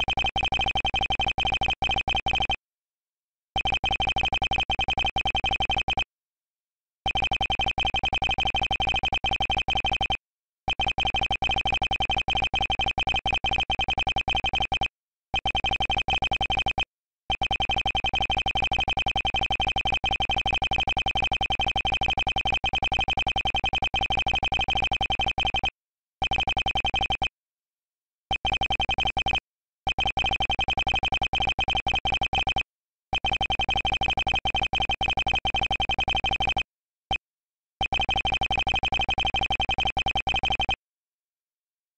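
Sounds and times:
short electronic text beeps: 1.5s - 2.6s.

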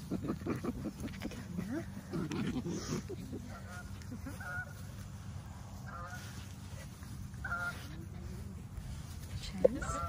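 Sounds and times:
geese honking: 2.8s - 8.4s, 9.0s - 10.0s.

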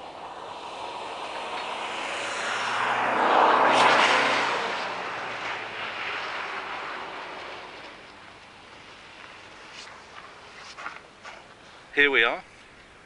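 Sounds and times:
car driving past over snow: 0.0s - 11.0s.

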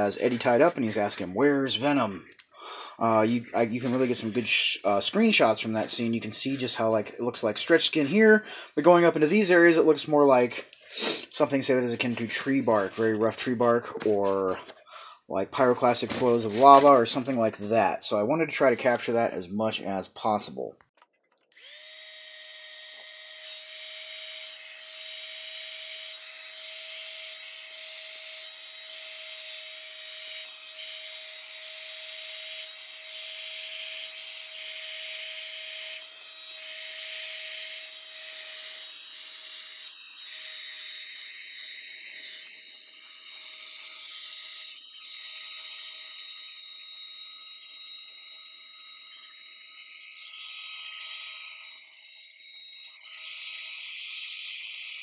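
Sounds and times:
heat gun fan whine: 21.5s - 24.3s.

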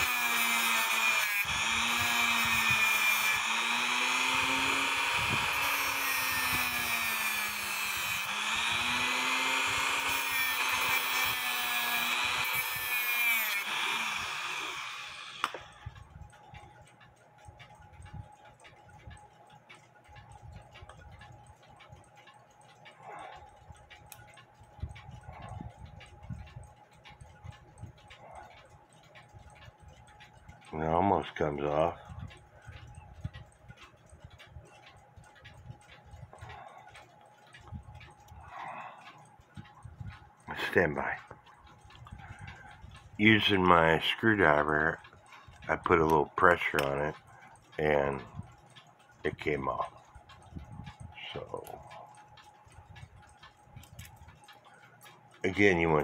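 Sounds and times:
rotary tool grinding whine: 0.0s - 16.6s, 36.2s - 48.5s
faint clicks of clock movement: 0.0s - 56.0s.

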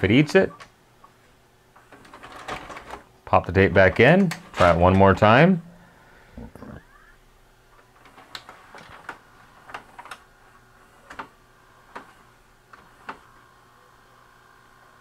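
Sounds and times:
faint mechanism whine: 0.0s - 15.0s
tape mechanism clicks and clacks: 1.8s - 5.3s, 7.8s - 13.4s.

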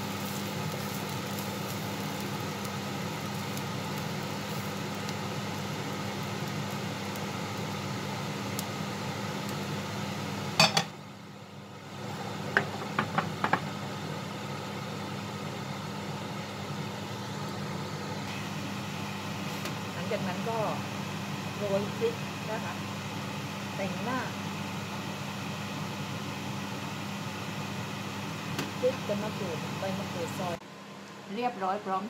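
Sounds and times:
steady mechanical hum: 0.0s - 32.0s
frying pan knocking on bowl: 10.6s - 10.9s, 12.5s - 13.7s.

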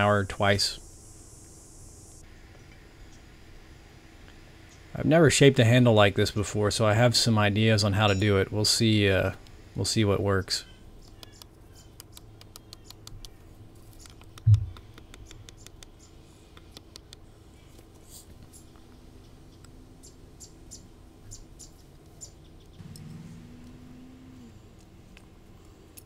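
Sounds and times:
low hum: 13.2s - 26.0s.

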